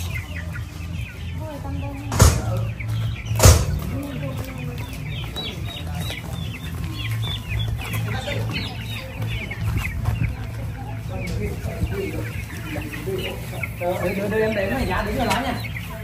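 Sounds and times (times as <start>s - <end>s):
chickens clucking: 0.0s - 16.0s
loud knocks: 3.3s - 3.9s.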